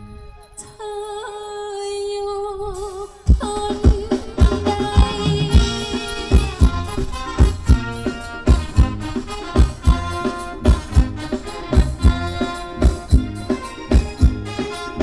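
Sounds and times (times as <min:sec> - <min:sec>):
live dance band playing: 0:02.8 - 0:15.0
heavy drum beat: 0:03.3 - 0:15.0.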